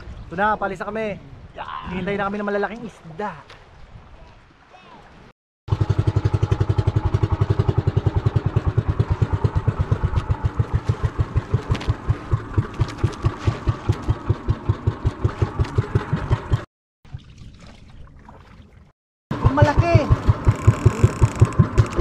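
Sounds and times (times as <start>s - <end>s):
boat engine pulsing: 5.7s - 16.7s, 19.3s - 22.0s.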